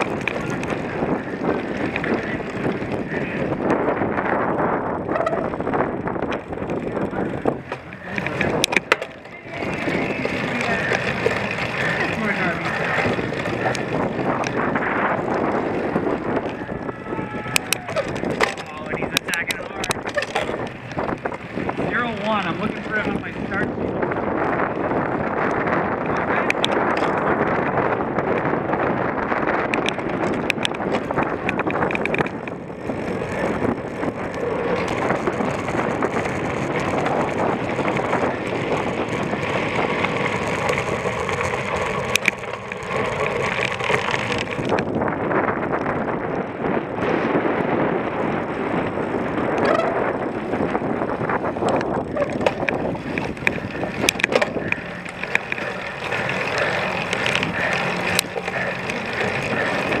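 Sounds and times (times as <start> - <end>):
bike rattling over rough ground: 0.0 - 60.0
sharp clicks and knocks: 7.6 - 9.4, 17.5 - 21.4, 26.2 - 27.2, 29.6 - 32.6, 39.9 - 45.0, 51.6 - 60.0.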